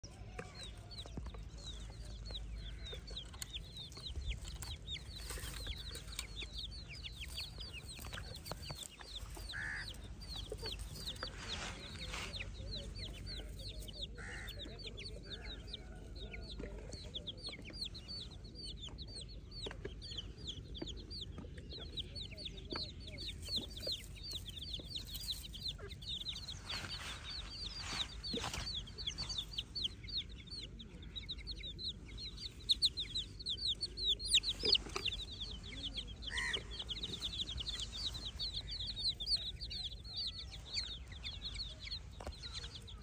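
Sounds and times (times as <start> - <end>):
chicks peeping: 0.0 - 43.0
lower chick calls: 9.1 - 11.2, 32.9 - 42.8.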